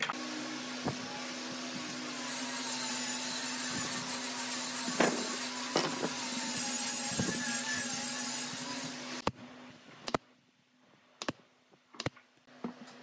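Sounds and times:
power tool running on wood: 0.1 - 9.2.

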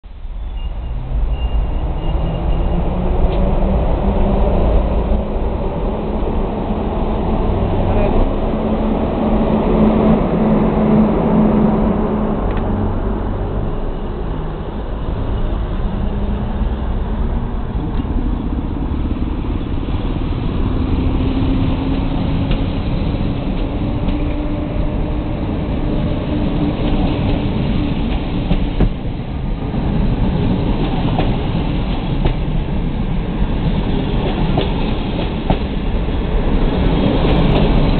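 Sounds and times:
train wheels rumbling on rails: 0.1 - 37.9
electric locomotive hum: 0.2 - 37.9.

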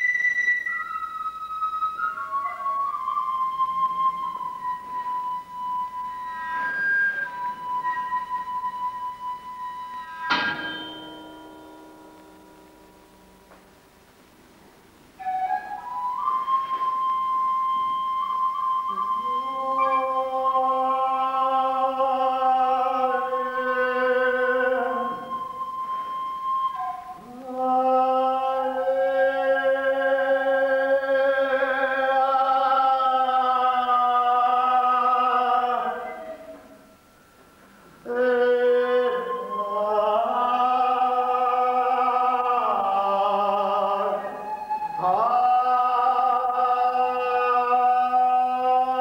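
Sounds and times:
high steady tone: 10.3 - 14.0
person singing long notes: 15.2 - 37.0, 38.0 - 49.0.

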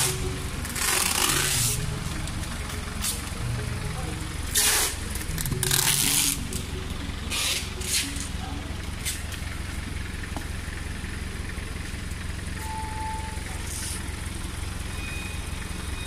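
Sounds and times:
faint voices: 0.0 - 9.9
steady low hum: 0.0 - 12.6.

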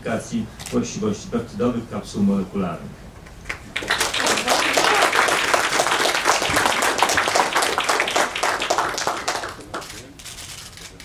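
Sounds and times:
audience applauding: 3.5 - 10.2.

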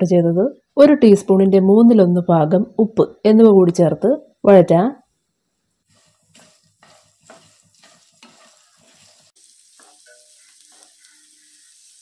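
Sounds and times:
faint sizzle of frying: 5.5 - 12.0
spatula scraping frying pan: 5.8 - 12.0.

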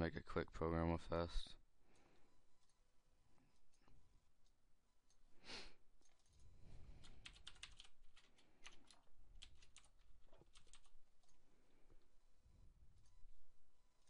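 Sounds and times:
keyboard typing: 6.0 - 11.4.

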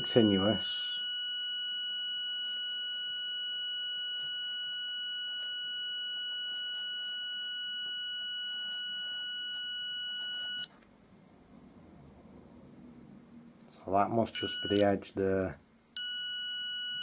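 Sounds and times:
continuous electronic beep: 0.0 - 10.7, 14.4 - 14.8, 16.0 - 17.0.

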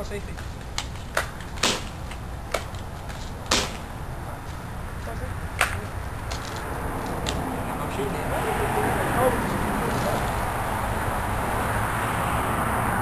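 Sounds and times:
bb pistol pops: 3.5 - 3.9.

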